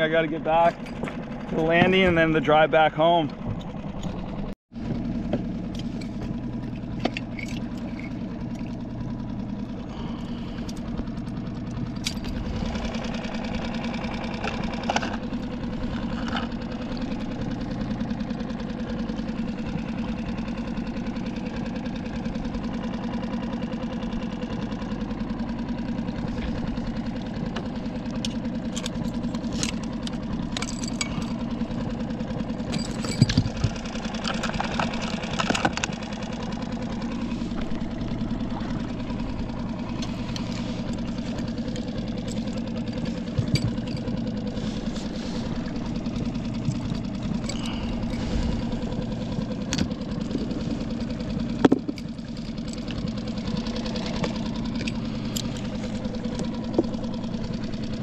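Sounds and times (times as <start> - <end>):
outboard motor idling: 0.0 - 58.0
clicks and knocks of gear: 0.6 - 2.3, 3.2 - 21.9, 25.9 - 58.0.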